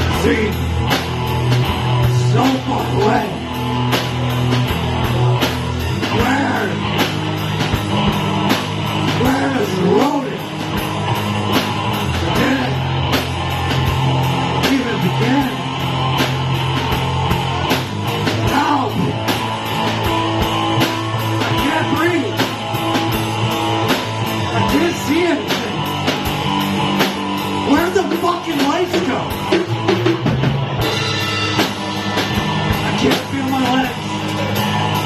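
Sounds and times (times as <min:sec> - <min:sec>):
drum kit beat: 0:00.0 - 0:35.0
electric guitar: 0:00.0 - 0:35.0
man singing: 0:05.9 - 0:06.9, 0:09.1 - 0:10.5, 0:12.2 - 0:13.0, 0:14.6 - 0:15.7, 0:18.4 - 0:19.2.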